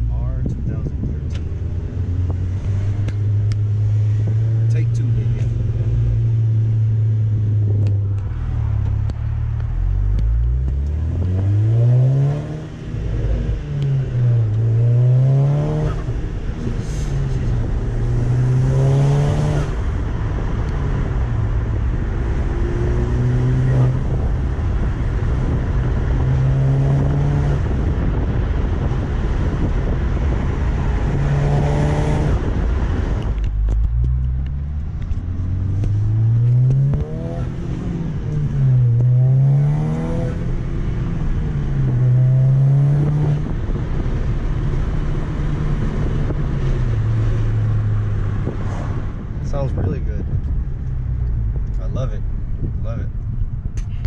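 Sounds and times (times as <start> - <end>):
car engine revving hard: 10.5 - 20.0, 21.6 - 32.8, 35.1 - 43.8.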